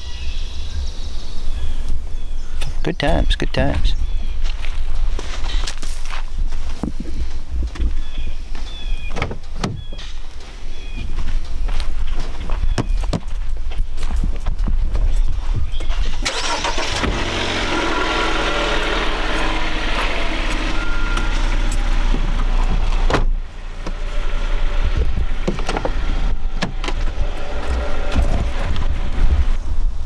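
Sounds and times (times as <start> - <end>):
car engine rumbling: 0.0 - 30.0.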